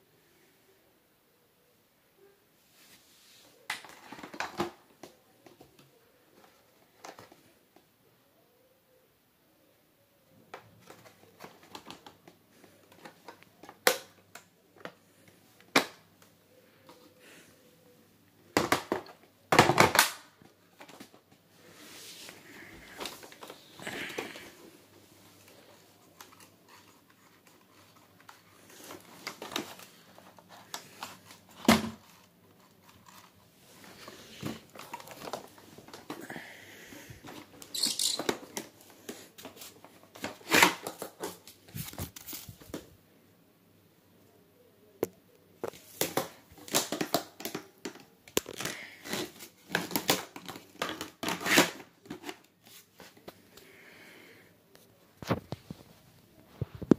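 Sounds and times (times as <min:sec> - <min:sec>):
plastic vacuum cleaner parts rattling: 0:25.7 - 0:36.2, 0:37.2 - 0:38.8.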